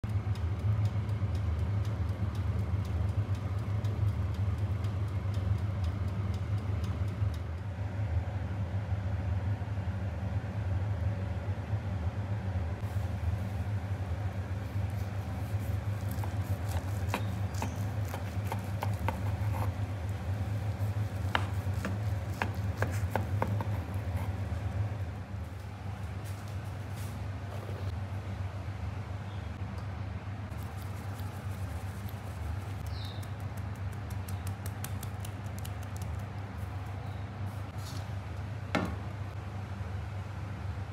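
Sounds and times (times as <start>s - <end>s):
low machine hum: 0.0s - 40.9s
knife cutting through cake crust: 15.0s - 24.5s.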